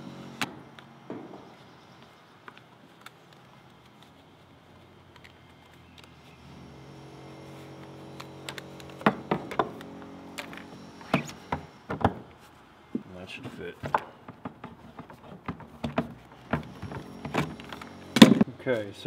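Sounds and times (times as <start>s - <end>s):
steady low hum: 6.2s - 18.7s.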